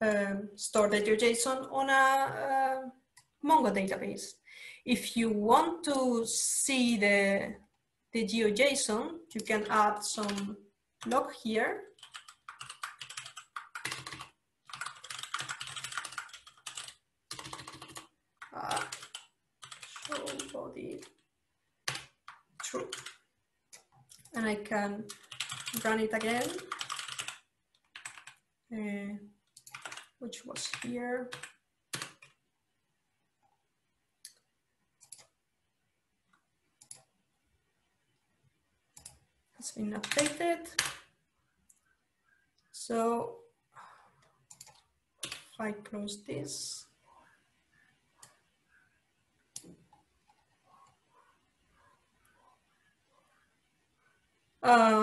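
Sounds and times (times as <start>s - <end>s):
computer keyboard typing: 9.3s - 28.5s, 29.4s - 32.4s, 34.2s - 35.4s, 36.8s - 37.1s, 39.0s - 39.2s, 39.9s - 41.1s, 44.2s - 45.5s, 48.2s - 48.5s, 49.5s - 53.3s
computer mouse clicks: 23.7s - 24.4s, 34.2s - 35.4s, 36.3s - 37.1s, 39.0s - 39.2s, 44.2s - 45.5s, 48.2s - 48.5s, 49.5s - 53.3s.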